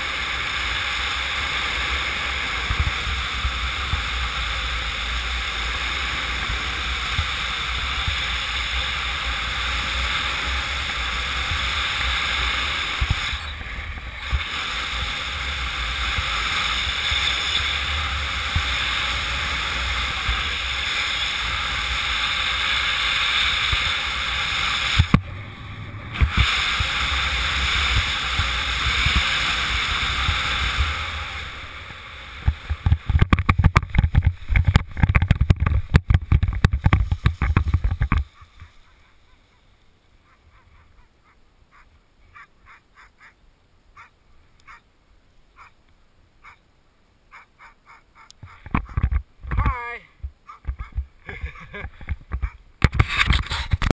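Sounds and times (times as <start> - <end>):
wind rushing over microphone: 0.0 - 38.9
rapid thumps on landing: 32.4 - 38.7.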